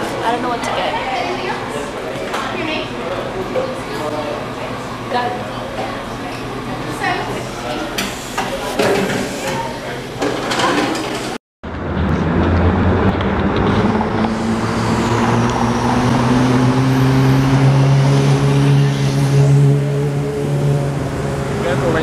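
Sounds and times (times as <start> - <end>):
cafe background noise: 0.0 - 11.4
street traffic: 0.0 - 22.0
vehicle engine humming: 11.6 - 22.0.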